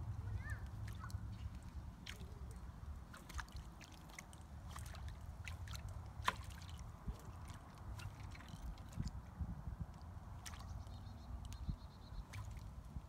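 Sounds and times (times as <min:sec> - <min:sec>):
steady low rumble: 0:00.0 - 0:13.0
lure splashing through water: 0:00.6 - 0:13.0
sharp splash: 0:00.8 - 0:09.1, 0:10.4 - 0:10.8, 0:12.2 - 0:12.7.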